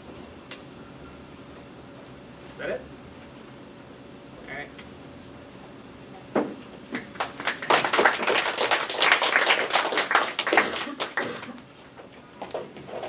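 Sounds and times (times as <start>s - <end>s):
people clapping: 6.9s - 11.7s.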